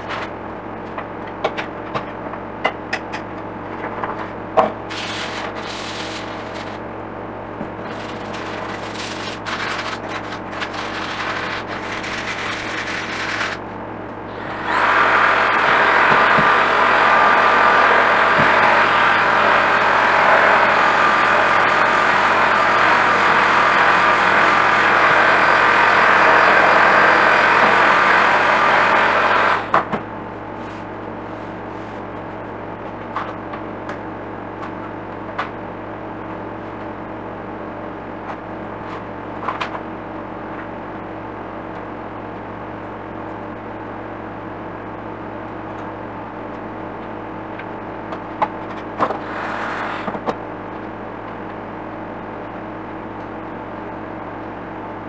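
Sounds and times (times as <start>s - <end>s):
room hum: 0.0s - 55.0s
handheld vacuum cleaner running: 4.9s - 6.8s, 7.8s - 13.6s, 14.3s - 29.8s
short scrape: 49.2s - 50.2s.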